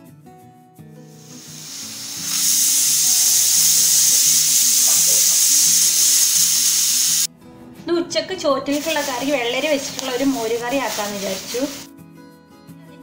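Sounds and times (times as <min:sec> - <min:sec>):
pressure cooker steam hiss: 0:01.1 - 0:07.3, 0:08.7 - 0:11.9
soft background music: 0:06.5 - 0:13.0.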